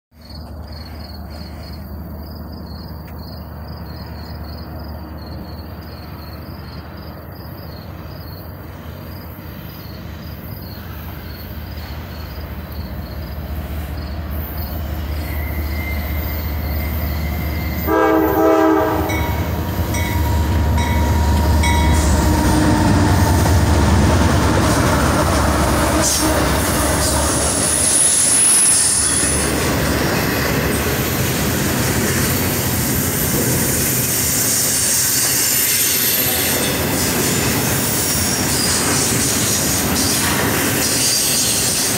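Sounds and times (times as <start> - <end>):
crickets chirping: 0.2 - 41.9
diesel locomotive rumble: 0.2 - 41.9
train rail noise: 0.2 - 41.9
wheel squeal: 14.3 - 17.9, 27.5 - 29.6, 34.3 - 41.9
train horn blast: 14.4 - 24.0.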